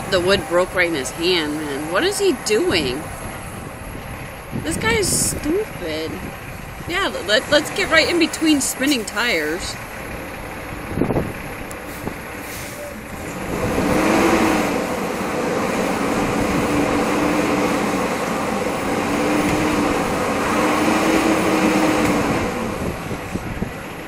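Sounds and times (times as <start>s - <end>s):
vehicle engine revving: 0.0s - 23.9s
tires spinning on ice: 6.8s - 18.1s.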